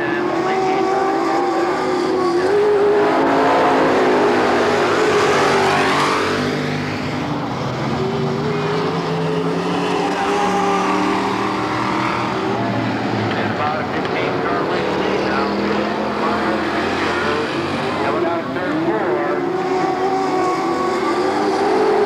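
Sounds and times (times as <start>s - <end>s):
stock car engines racing past: 0.0s - 22.0s.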